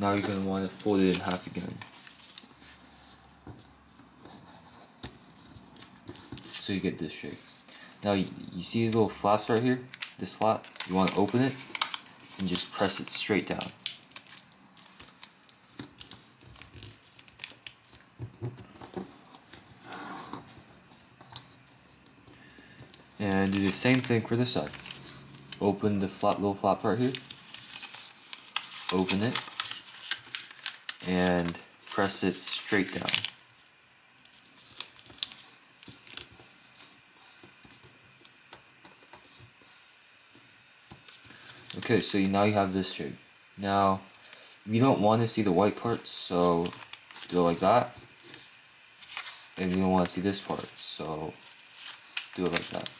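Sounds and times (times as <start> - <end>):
paper crinkling and rustling: 0.0 - 3.0, 8.8 - 19.9, 22.9 - 38.0, 41.0 - 42.4, 46.5 - 52.9.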